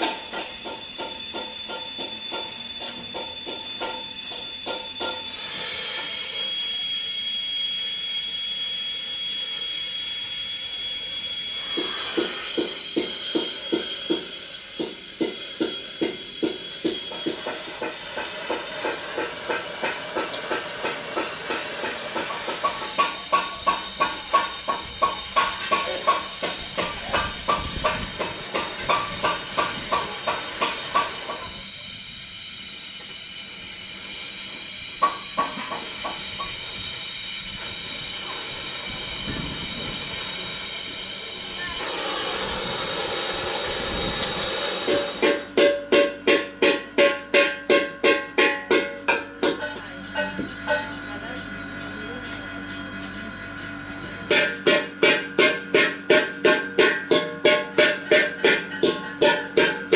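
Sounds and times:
welding torch flame hissing: 0:00.0 - 0:45.6.

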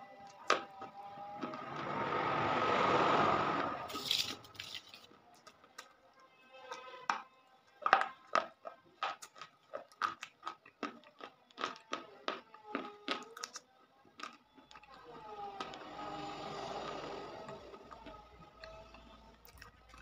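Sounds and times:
chalk crunching when chewed: 0:07.7 - 0:15.0, 0:16.3 - 0:20.0.

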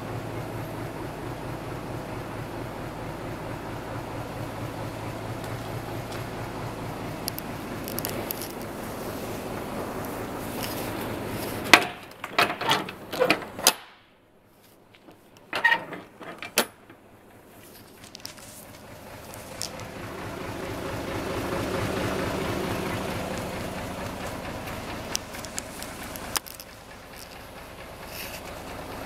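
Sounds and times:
vehicle engine hum: 0:00.0 - 0:13.7, 0:14.3 - 0:29.0
sharp clicks and knocks: 0:11.4 - 0:14.0, 0:17.7 - 0:20.0, 0:24.2 - 0:28.6.

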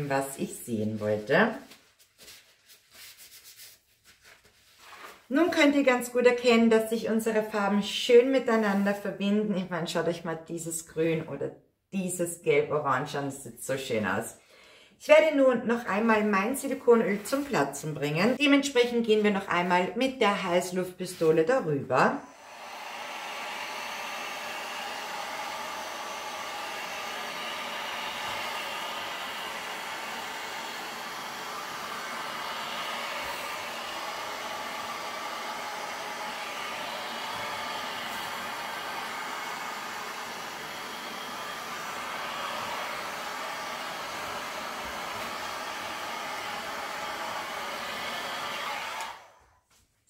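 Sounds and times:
heat gun fan blowing: 0:22.3 - 0:49.4.

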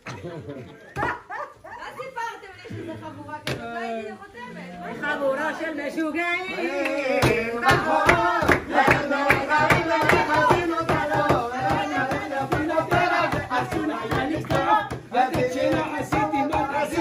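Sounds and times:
group of people singing: 0:04.8 - 0:17.0
rhythmic hand clapping: 0:06.7 - 0:17.0.

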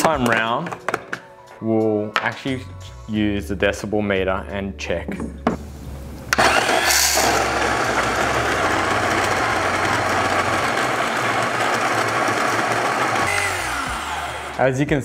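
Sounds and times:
motor whine spinning down: 0:06.3 - 0:12.1
coffee grinder grinding: 0:06.3 - 0:14.6.

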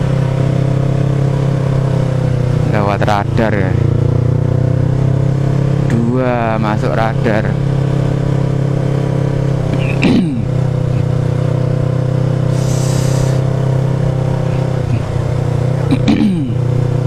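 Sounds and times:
motorcycle engine hum: 0:00.0 - 0:17.0
short hiss: 0:12.5 - 0:13.4.

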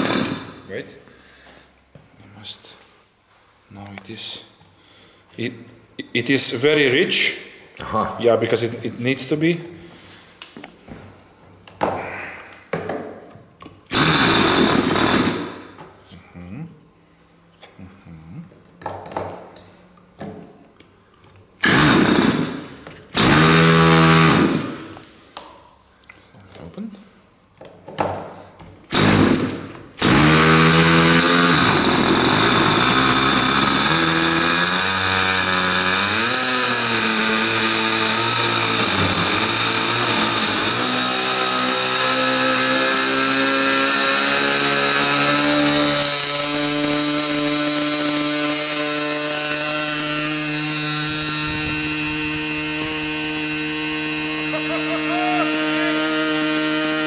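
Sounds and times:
model engine running at high speed: 0:49.7 - 0:57.0.

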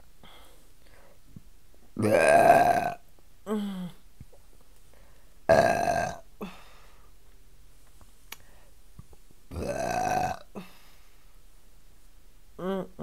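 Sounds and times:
woman burping loudly: 0:02.0 - 0:04.0, 0:05.5 - 0:06.6, 0:09.5 - 0:10.7.

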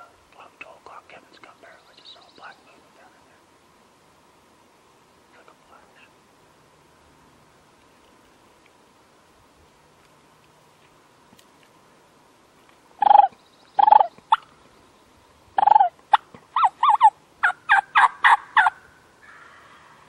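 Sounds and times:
turkey yelping: 0:13.0 - 0:14.4, 0:15.6 - 0:19.9.

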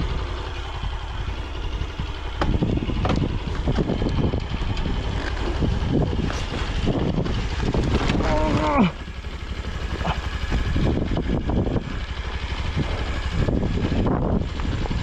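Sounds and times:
motorcycle on gravel track: 0:00.0 - 0:15.0
wind buffeting microphone: 0:00.8 - 0:15.0
short knocks and rattles: 0:02.4 - 0:04.3.

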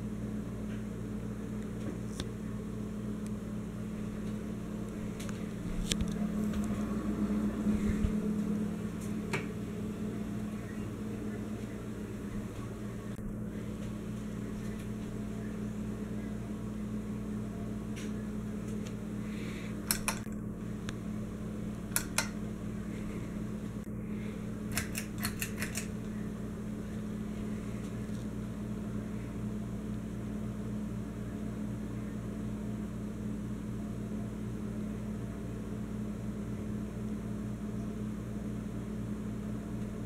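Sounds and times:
ceiling fan motor hum: 0:00.0 - 0:40.0
pull-chain switch clicks: 0:19.8 - 0:20.4, 0:21.9 - 0:22.4, 0:24.7 - 0:26.0.

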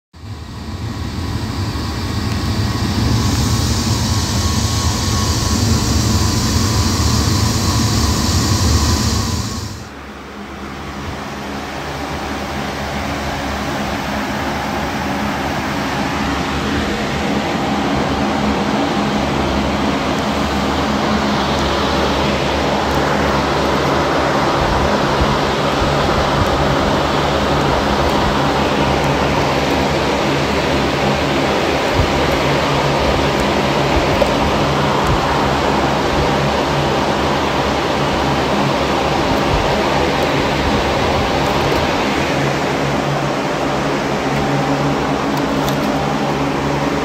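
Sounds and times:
firebox burning with rushing noise: 0:00.2 - 0:47.0
large fans whooshing and humming: 0:00.2 - 0:47.0.

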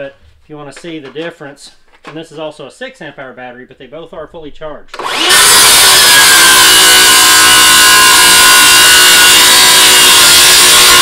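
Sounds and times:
circular saw cutting wood: 0:05.0 - 0:11.0.

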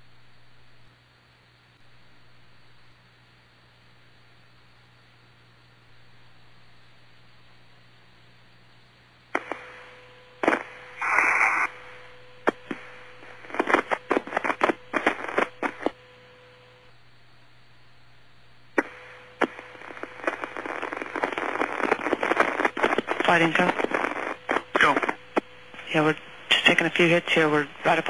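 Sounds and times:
steady low hum: 0:00.0 - 0:28.0
radio static crackling: 0:09.3 - 0:16.9, 0:18.7 - 0:28.0
burst of hiss: 0:10.5 - 0:11.9.

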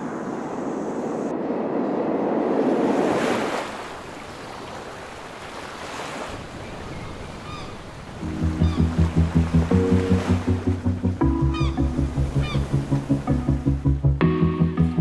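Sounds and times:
surf washing on shore: 0:00.0 - 0:11.0
faint high bird calls: 0:06.6 - 0:07.8, 0:08.4 - 0:09.0.

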